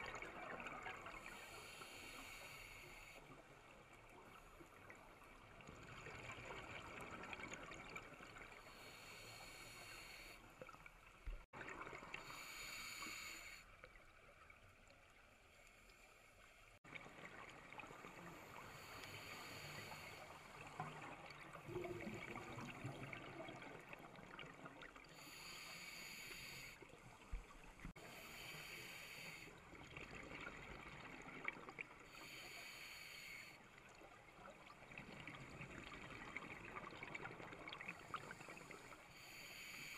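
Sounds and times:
faint water hiss: 0.0 - 39.9
exhaled air bubbling underwater: 16.8 - 39.8.

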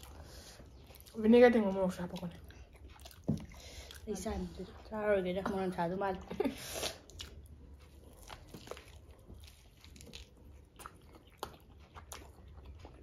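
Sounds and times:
wet chewing: 0.0 - 5.8, 6.6 - 13.0
crunching fried chicken: 7.0 - 13.0.

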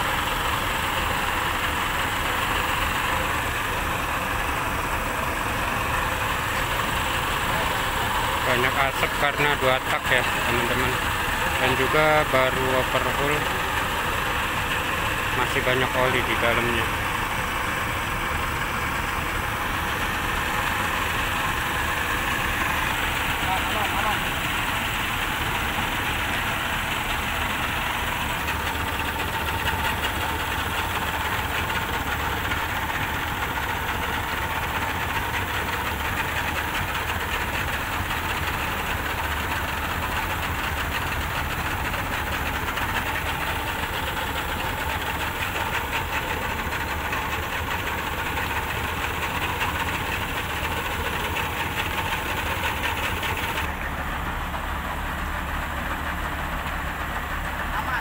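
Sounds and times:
outboard motors idling: 0.0 - 58.0.

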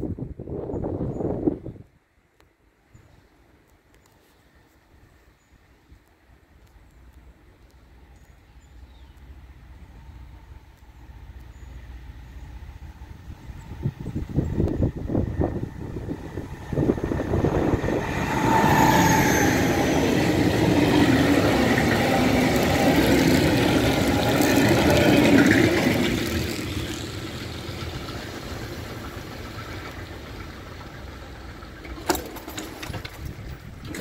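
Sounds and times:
diesel locomotive engine: 0.0 - 34.0
wagons rolling over rails: 16.6 - 34.0.

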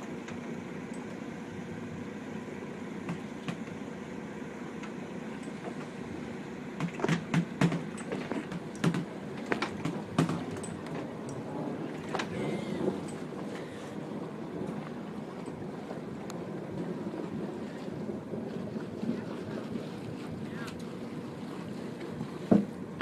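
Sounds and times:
open water: 0.0 - 23.0
wind: 0.0 - 23.0
sharp taps and knocks: 6.8 - 10.7.

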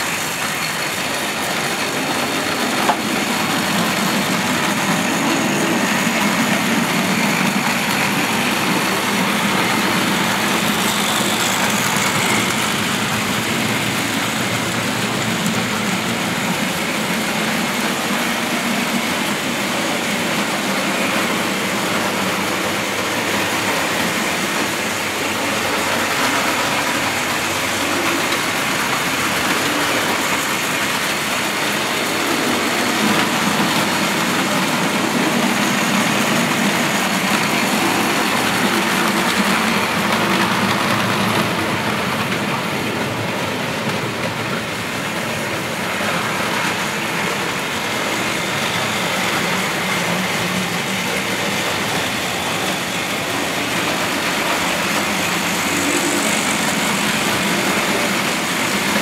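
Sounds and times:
metal wheels on rails: 0.0 - 59.0
model train motors running: 0.0 - 59.0.

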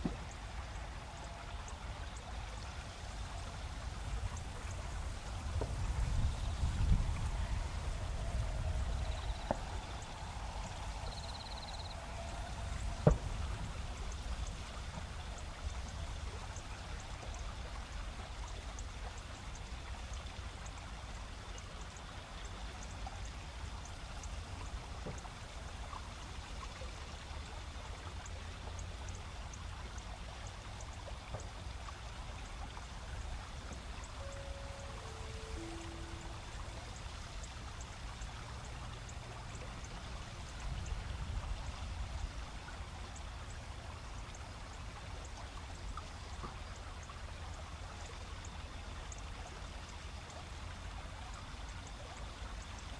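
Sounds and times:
river rushing over shallows: 0.0 - 52.9
insects chirping: 2.0 - 17.6, 33.6 - 41.0
distant train rumble: 3.0 - 16.2, 34.1 - 37.4.

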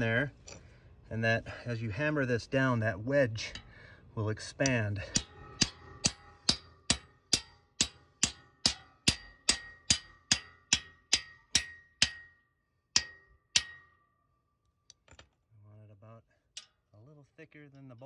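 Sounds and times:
hammer striking metal bolt: 4.6 - 14.2.

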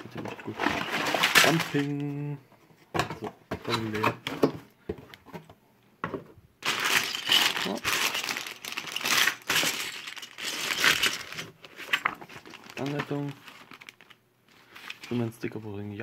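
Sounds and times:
plastic bags crinkling: 0.5 - 2.1, 6.6 - 15.3.

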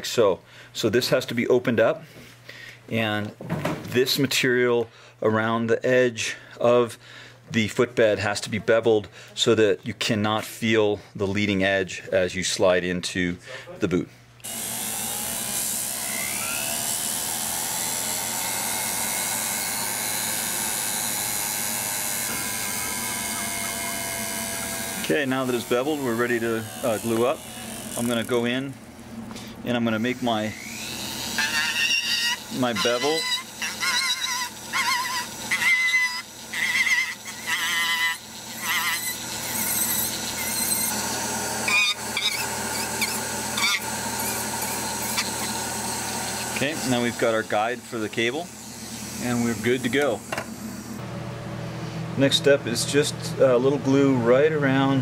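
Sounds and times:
rotary tool whining: 14.4 - 28.6, 29.9 - 51.0.

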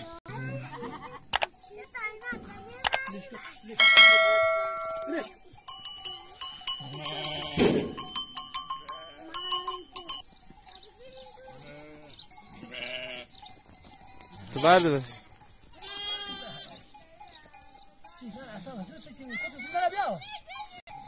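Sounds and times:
sheep and goats bleating: 0.0 - 1.7, 2.5 - 20.8
livestock bells clanking: 0.3 - 21.0.

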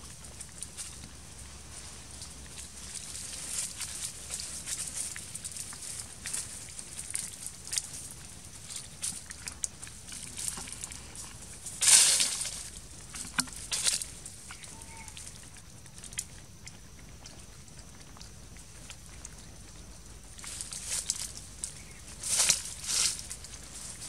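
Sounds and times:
dry leaves crackling underfoot: 0.0 - 15.4, 20.3 - 24.0
loud crunch of leaves: 10.0 - 15.2, 20.4 - 24.0.

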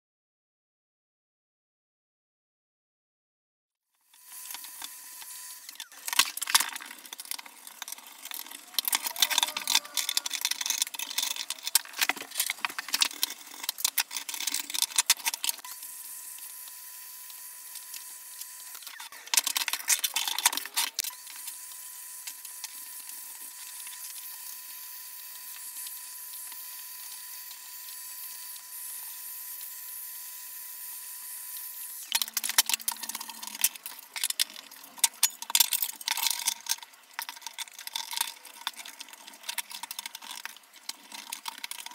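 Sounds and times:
metal parts clattering on wood: 5.9 - 15.6, 19.1 - 21.1, 32.1 - 41.9.

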